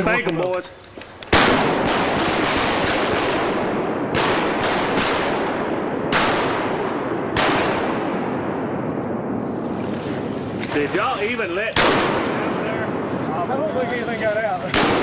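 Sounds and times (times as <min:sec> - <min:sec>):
shotgun shots with echoes: 0:01.3 - 0:08.5, 0:11.8 - 0:13.0, 0:14.7 - 0:15.0.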